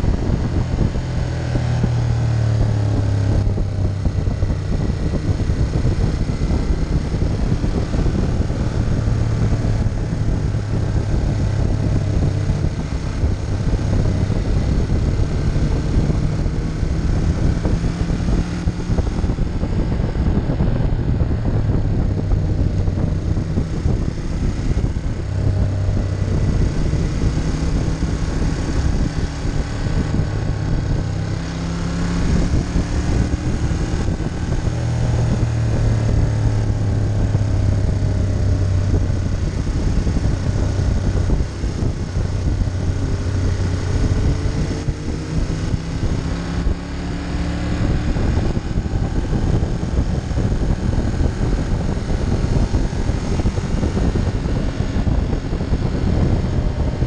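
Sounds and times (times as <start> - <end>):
motorcycle engine cruising: 0.0 - 57.0
wind noise on microphone: 0.0 - 57.0.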